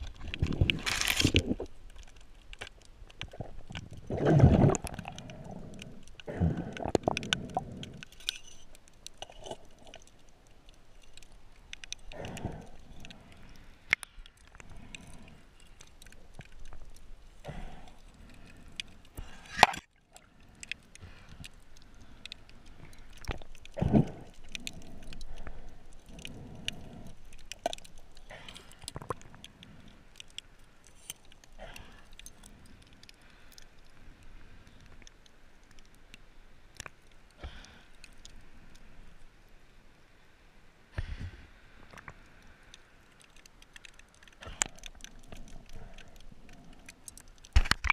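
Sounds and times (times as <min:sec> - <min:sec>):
muffled water swishes: 0:00.0 - 0:47.5
underwater clicks and knocks: 0:43.5 - 0:47.9.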